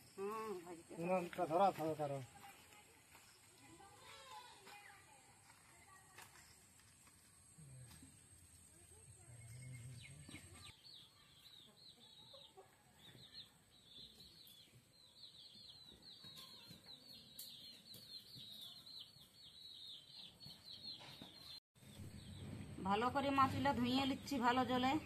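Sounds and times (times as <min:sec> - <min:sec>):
birds chirping: 0:08.9 - 0:25.0.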